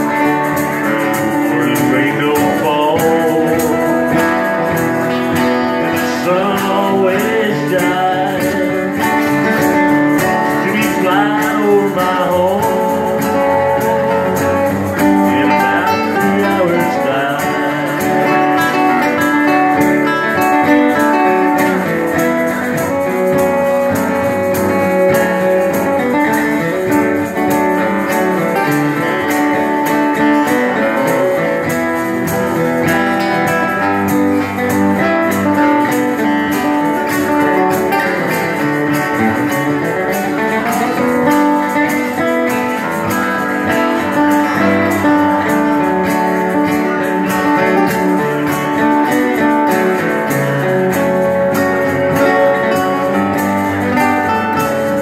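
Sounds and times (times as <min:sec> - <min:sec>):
acoustic guitar strumming: 0:00.0 - 0:55.0.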